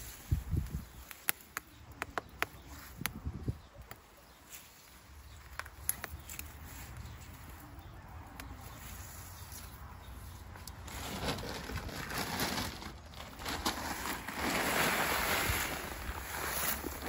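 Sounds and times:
paper bag rustling: 10.7s - 17.0s
soil pouring into wheelbarrow: 10.8s - 17.0s.

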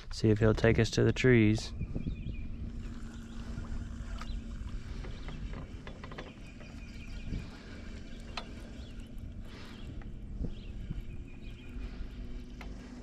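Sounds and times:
boat motor humming: 1.1s - 13.0s
clicks and knocks of fishing gear: 3.7s - 6.8s.

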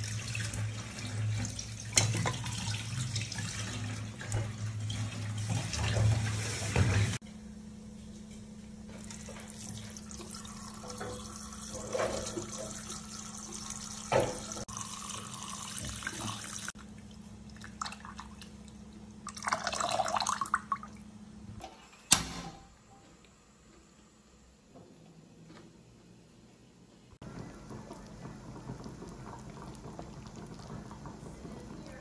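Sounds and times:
tap water running into pot: 0.0s - 7.2s, 9.0s - 16.8s, 27.3s - 32.0s.

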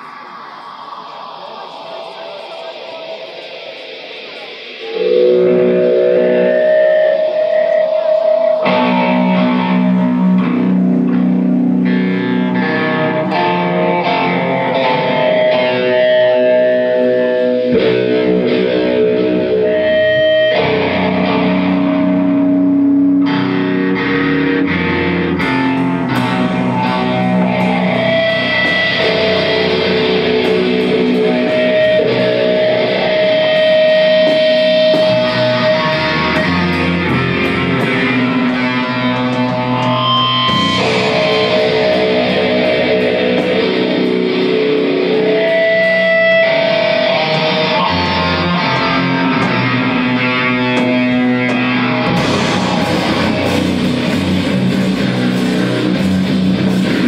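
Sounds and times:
electric guitar sustained notes: 0.0s - 57.0s.

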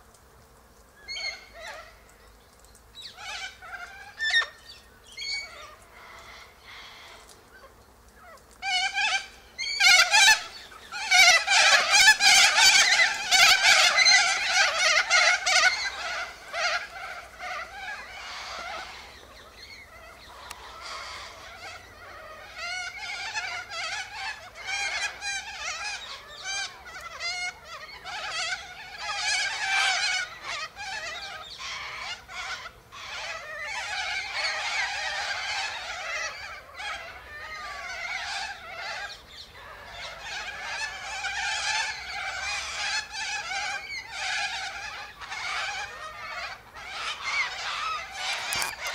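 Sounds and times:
cockatoos screeching: 8.6s - 48.9s.

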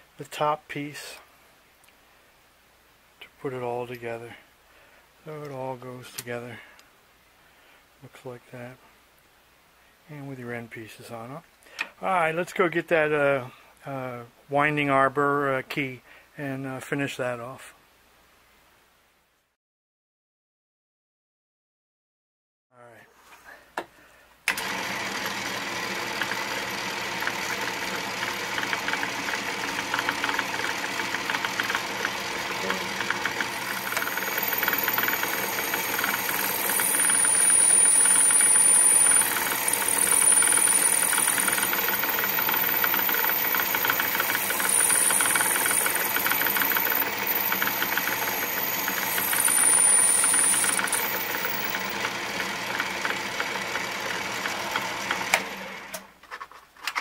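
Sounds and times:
lathe running: 24.5s - 55.8s
thin high whine of drill bit: 26.2s - 52.1s.

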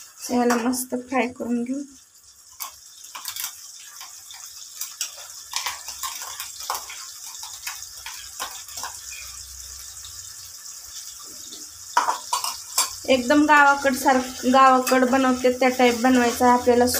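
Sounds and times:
paste sizzling in hot oil: 0.0s - 16.9s
crackles and pops: 2.5s - 9.3s.

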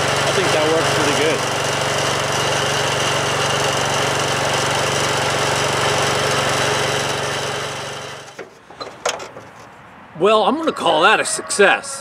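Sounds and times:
garden tractor engine running: 0.0s - 9.5s.

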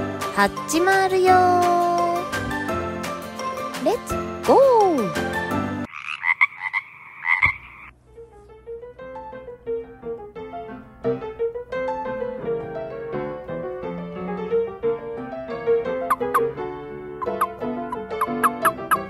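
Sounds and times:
piano music: 0.0s - 5.9s, 8.0s - 19.0s
frog croaking: 5.9s - 7.9s, 16.1s - 16.5s, 17.2s - 19.0s.

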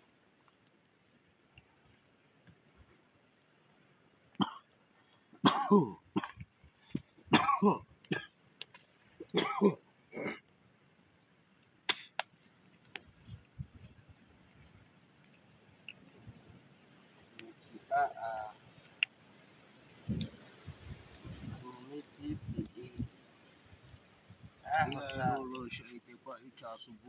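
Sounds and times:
man coughing: 5.4s - 6.4s, 7.3s - 8.3s, 9.4s - 10.4s.

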